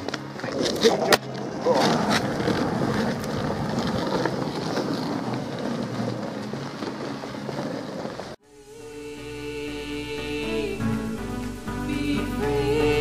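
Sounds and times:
skateboard wheels rolling on asphalt: 0.0 - 9.0.

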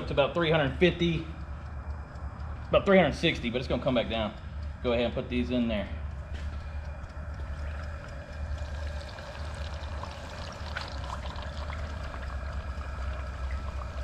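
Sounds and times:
gas burner rumble: 0.0 - 14.0
fish sizzling in hot oil: 8.4 - 14.0.

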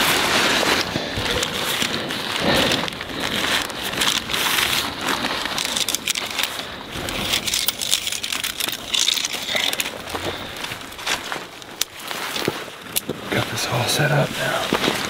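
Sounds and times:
tent fabric rustling: 0.0 - 15.0
tent poles clicking: 0.0 - 15.0.

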